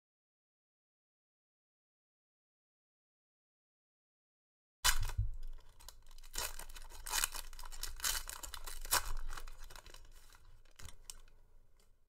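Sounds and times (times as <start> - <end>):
foil wrapper tearing and crinkling: 4.9 - 11.9
cards rustling: 4.9 - 12.0.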